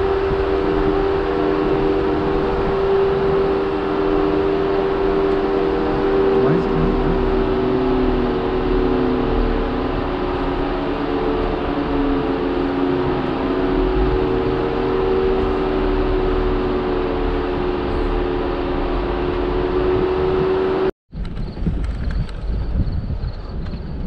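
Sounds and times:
rough noise: 0.0s - 20.9s
vehicle engine and drivetrain whine: 0.0s - 24.0s.

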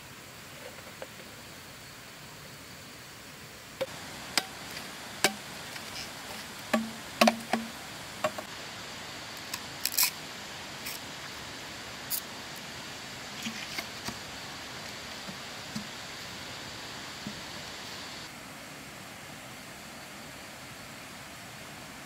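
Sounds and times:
steady background hiss: 0.0s - 22.0s
bamboo knocks and clicks: 6.7s - 8.5s.

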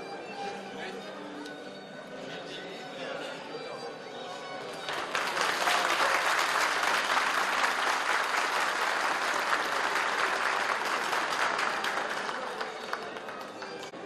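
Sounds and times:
audience applauding: 4.9s - 14.0s.

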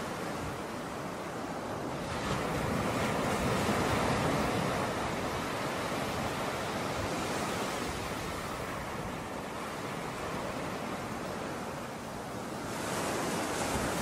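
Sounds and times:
waves washing onto shore: 0.0s - 14.0s.

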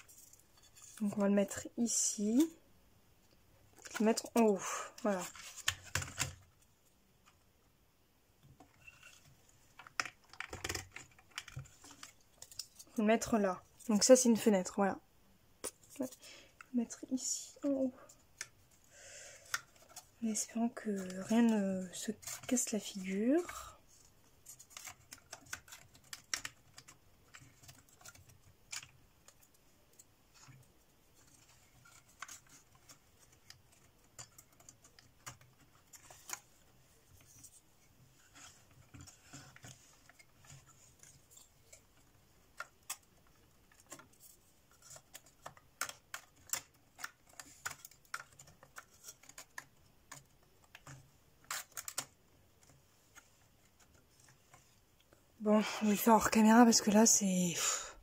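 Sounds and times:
plywood parts clicking and tapping: 8.4s - 12.9s, 31.2s - 36.4s.

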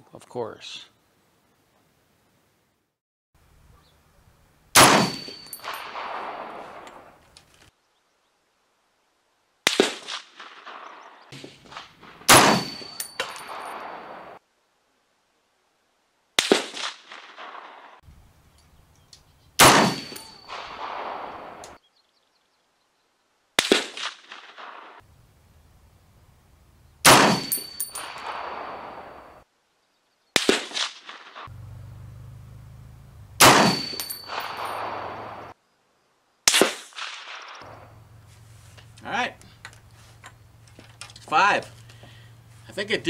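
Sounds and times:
rifle shots echoing: 4.8s - 7.2s, 9.7s - 14.4s, 16.4s - 18.0s, 19.6s - 21.8s, 23.6s - 25.0s, 27.0s - 29.4s, 30.4s - 31.5s, 33.4s - 35.6s, 36.5s - 37.9s.

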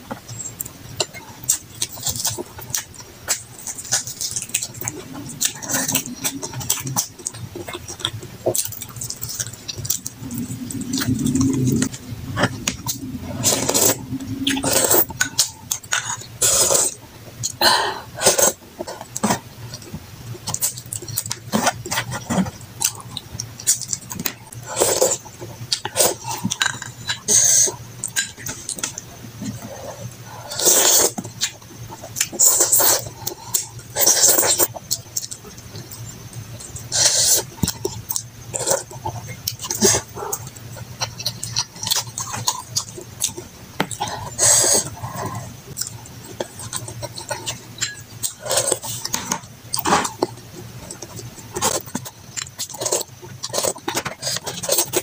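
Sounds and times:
clicky mouth sounds: 0.3s - 16.3s.

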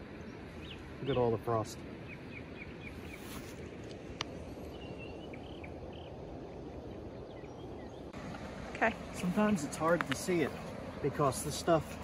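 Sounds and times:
outdoor background hiss: 0.0s - 12.0s.

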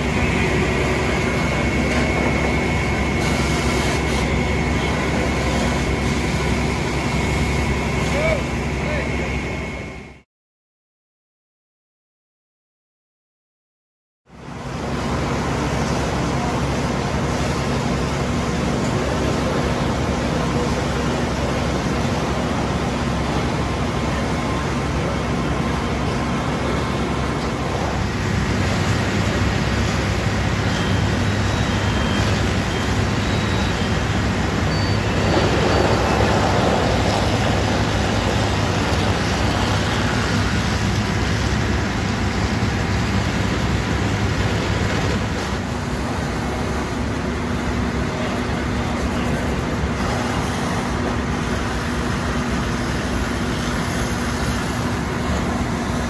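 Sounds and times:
fire truck engine running: 0.0s - 10.2s, 14.3s - 56.0s
hose streams spraying: 0.1s - 6.6s, 48.8s - 56.0s.

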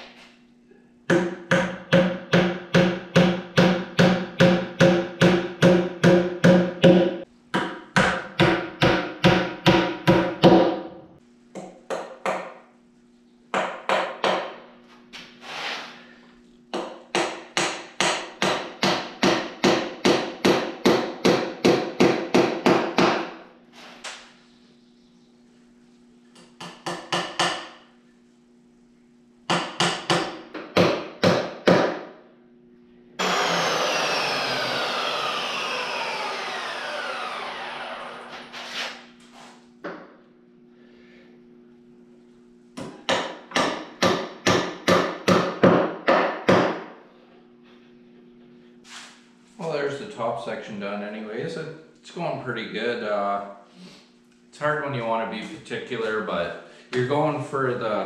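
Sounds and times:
steady whirring noise: 32.5s - 45.9s.

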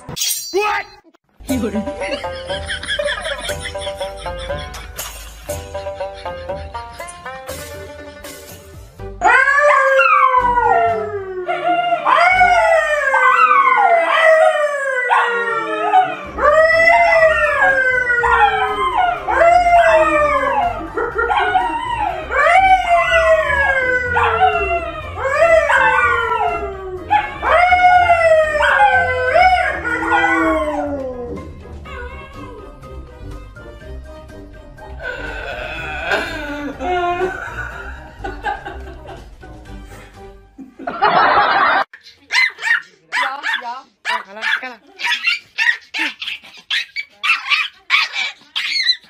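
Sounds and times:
dogs howling: 9.2s - 32.8s
man howling: 35.0s - 37.6s.

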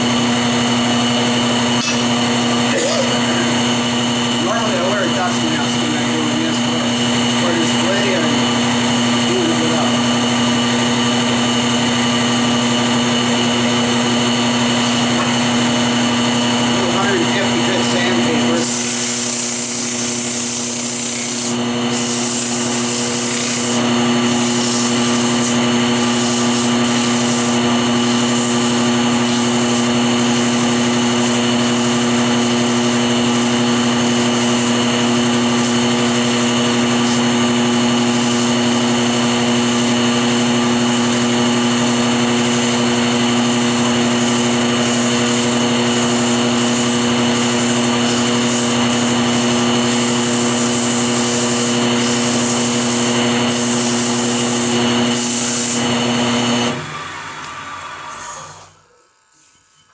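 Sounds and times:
wood lathe motor hum: 0.0s - 59.0s
sandpaper rubbing hiss: 18.6s - 27.6s.

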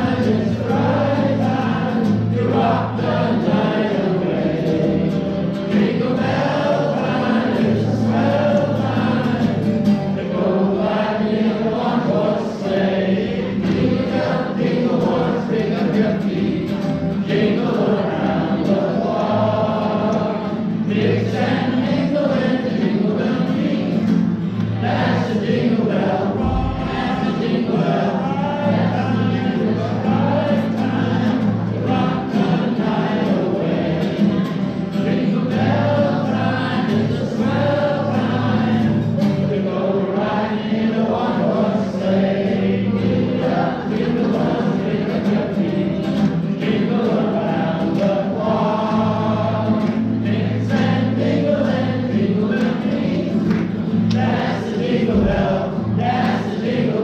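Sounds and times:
held bass notes: 0.0s - 34.0s
group singing: 0.0s - 57.0s.

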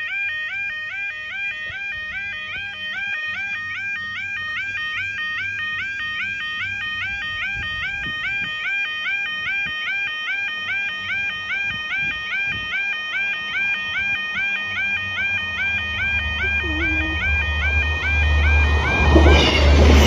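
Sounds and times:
level crossing warbling alarm: 0.0s - 19.8s
low rumble of train: 14.4s - 20.0s.

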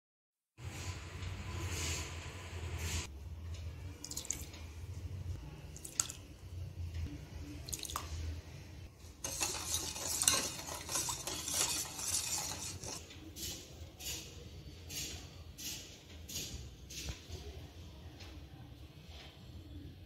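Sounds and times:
spoon clinking on metal bowl: 9.2s - 13.0s
water splashing while stirred: 9.2s - 13.0s.

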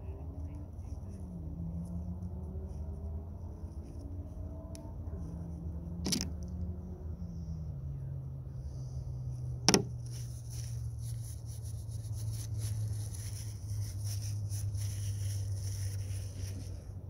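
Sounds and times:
paintbrush rubbing on surface: 9.7s - 16.9s.

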